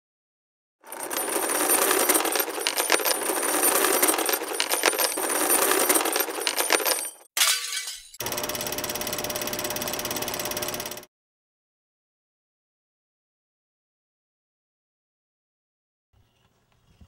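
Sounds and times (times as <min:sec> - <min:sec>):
metal chains rattling: 0:00.9 - 0:08.2
fast-pulsing mechanical hum: 0:08.2 - 0:11.1.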